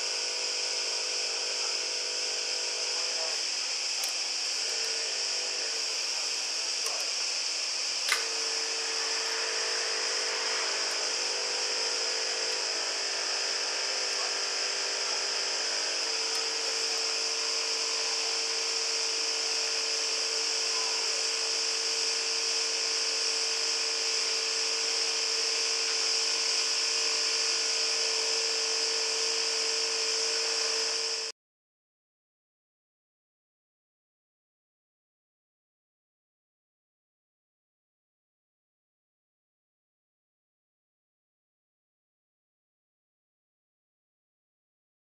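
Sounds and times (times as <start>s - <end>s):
vacuum pump running: 0.0s - 31.3s
sharp click: 4.0s - 4.2s, 8.1s - 8.4s.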